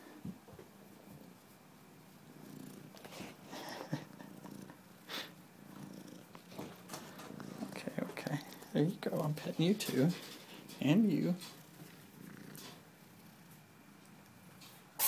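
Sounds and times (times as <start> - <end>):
cat purring: 0.8 - 15.0.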